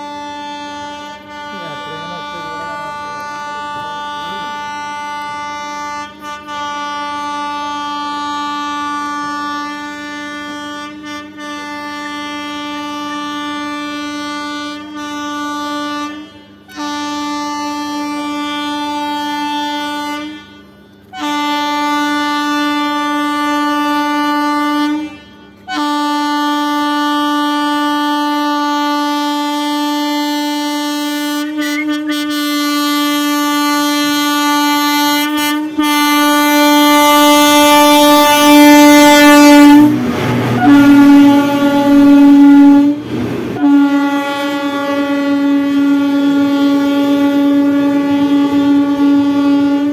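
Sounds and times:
locomotive air horn blasts: 0.0s - 49.9s
rumble of train wheels: 0.0s - 49.9s
rush of air from passing train: 37.7s - 45.9s.

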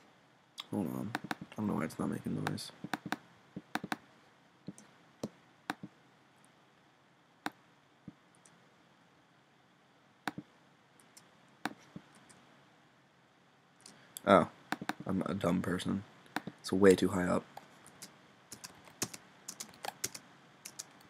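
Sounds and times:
mouse and keyboard clicks: 1.1s - 1.5s, 2.4s - 4.0s, 14.7s - 15.0s.

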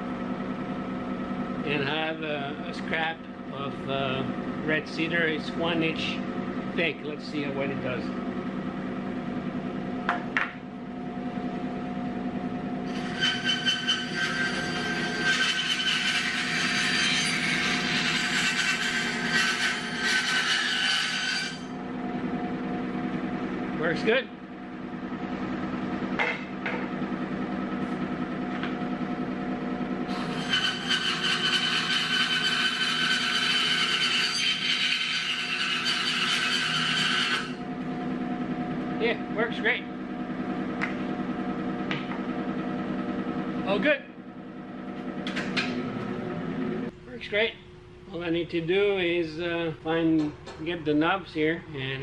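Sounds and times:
bandsaw humming: 12.2s - 43.9s
bandsaw blade cutting wood: 12.9s - 21.8s, 30.1s - 37.6s.

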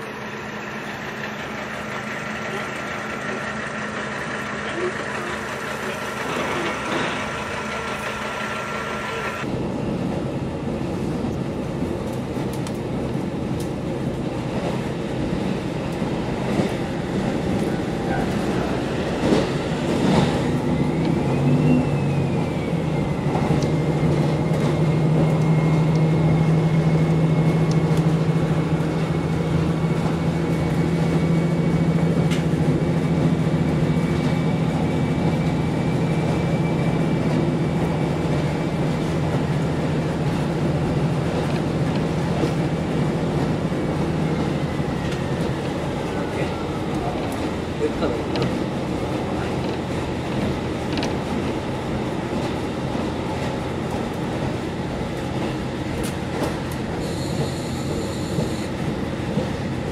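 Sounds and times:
diesel engine running: 0.0s - 9.5s
train wheels rumbling on rails: 0.0s - 59.9s.

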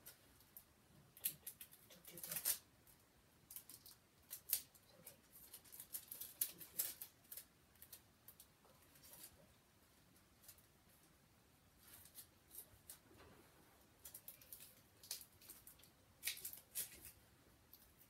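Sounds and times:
wrapping crinkling: 1.2s - 2.6s, 3.5s - 9.4s, 14.0s - 17.9s.

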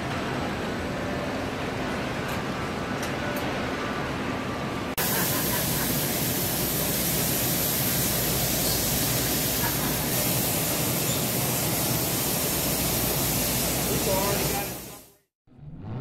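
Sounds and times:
factory machinery hissing: 5.0s - 15.2s.

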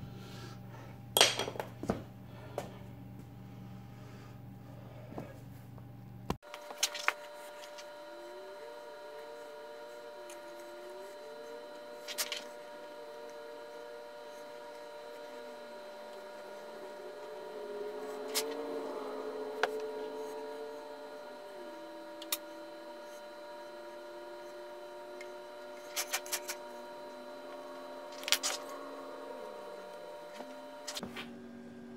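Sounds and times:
steady multi-tone hum: 0.0s - 31.9s
low wavering tone: 6.6s - 31.9s.

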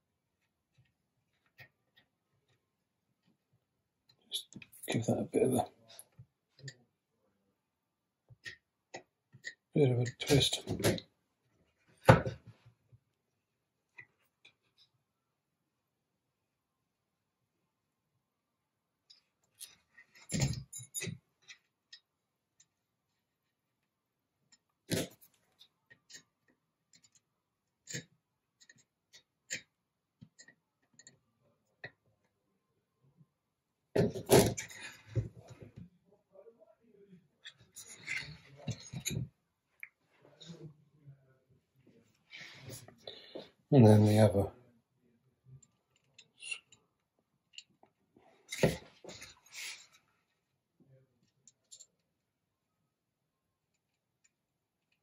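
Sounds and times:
metal washers clicking and scraping: 37.4s - 39.3s.

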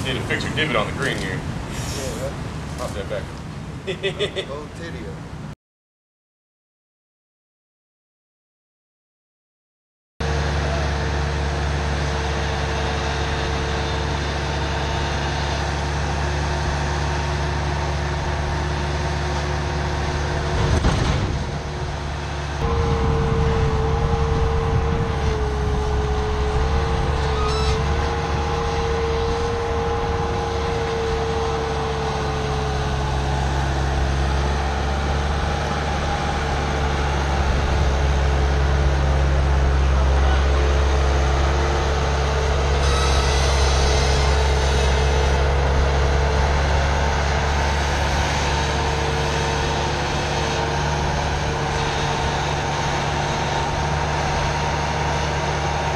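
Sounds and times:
heavy equipment engines running: 0.0s - 5.2s, 10.2s - 55.9s
wavering whine: 21.6s - 55.9s.

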